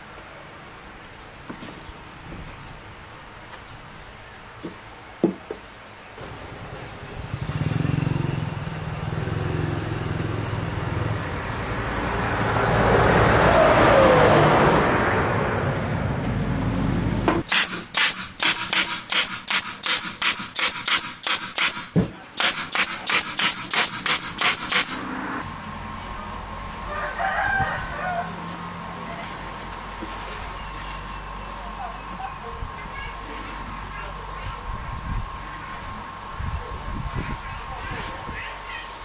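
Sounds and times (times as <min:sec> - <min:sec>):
nail gun firing: 0:17.4 - 0:25.0
noisy whoosh: 0:24.4 - 0:25.6.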